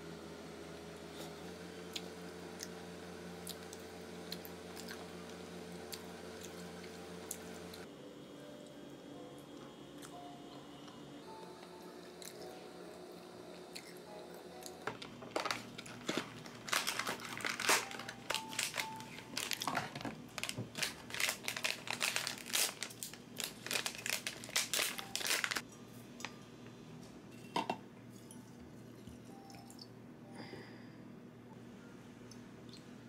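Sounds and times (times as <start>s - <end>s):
faint background music: 0.0s - 33.0s
paper packet crinkling and tearing: 14.9s - 25.6s.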